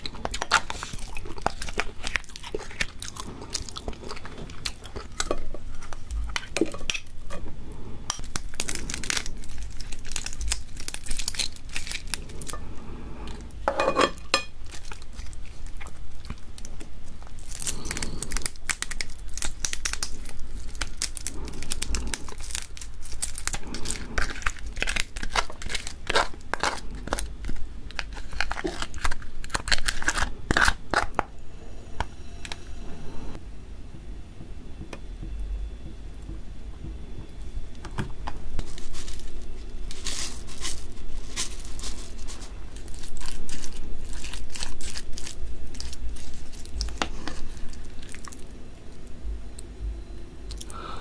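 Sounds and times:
crab shell cracking and snapping: 0:08.1 - 0:12.2, 0:14.6 - 0:31.2.

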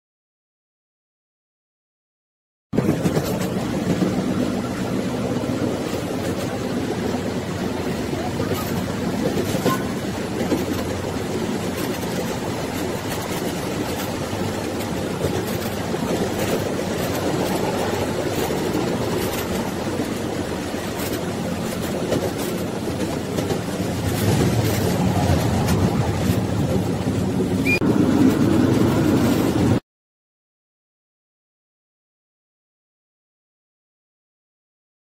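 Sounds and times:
train rumbling on track: 0:02.8 - 0:29.8.

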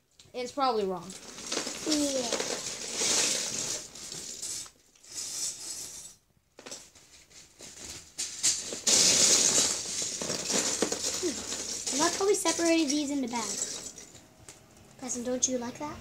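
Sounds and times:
plastic bricks rattling in a bin: 0:01.1 - 0:06.0, 0:07.6 - 0:14.2.

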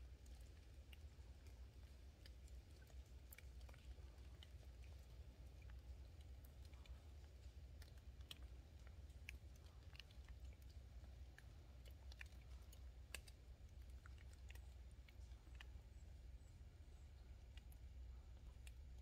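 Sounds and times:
low steady rumble: 0:00.0 - 0:19.0.

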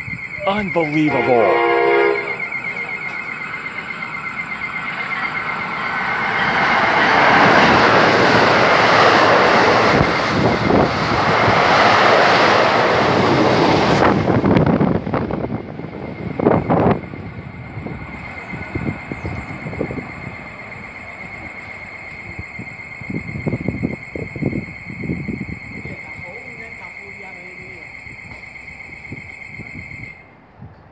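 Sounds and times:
thin high ringing tone: 0:00.0 - 0:07.1, 0:16.1 - 0:30.3
train wheels rushing on rail: 0:00.0 - 0:30.9.

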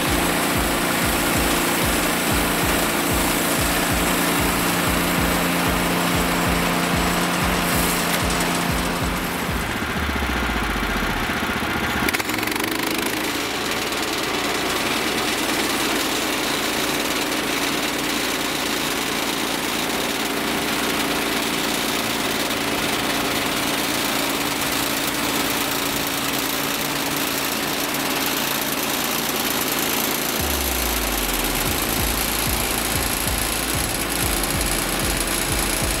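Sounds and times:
band blade spinning: 0:00.0 - 0:11.2, 0:30.4 - 0:36.0
sawmill gasoline engine running: 0:00.0 - 0:36.0.

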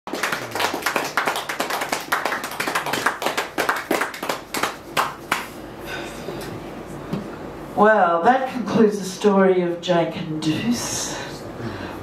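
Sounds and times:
audience applauding: 0:00.1 - 0:05.5.

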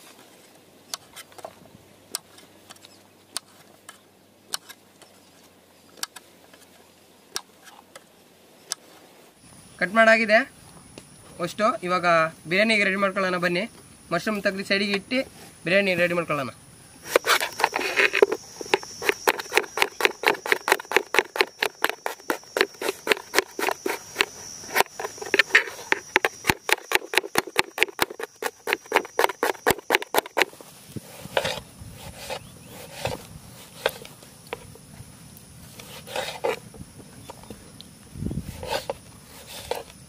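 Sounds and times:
knife slicing on wooden board: 0:17.1 - 0:34.0, 0:35.8 - 0:36.6, 0:38.5 - 0:39.9.

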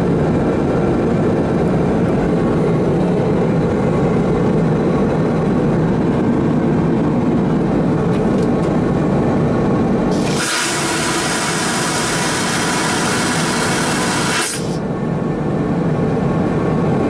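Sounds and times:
airplane cabin engine drone: 0:00.0 - 0:17.0.

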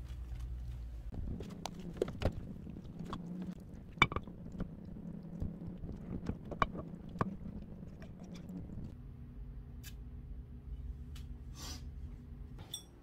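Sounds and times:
steady low hum: 0:00.0 - 0:12.6
spatula stirring food in a pot: 0:01.2 - 0:08.9.

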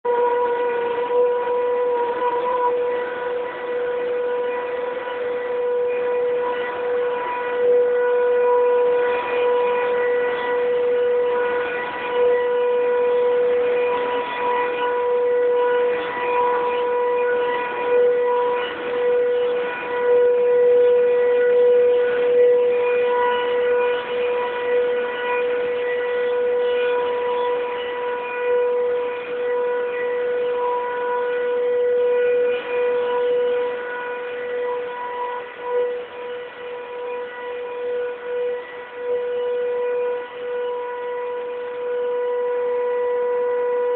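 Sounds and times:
steady high whine: 0:00.0 - 0:43.9.

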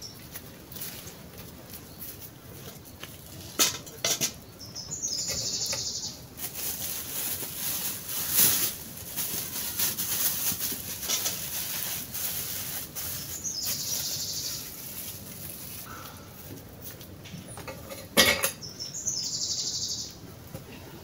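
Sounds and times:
plastic bag rustling: 0:06.1 - 0:17.2.

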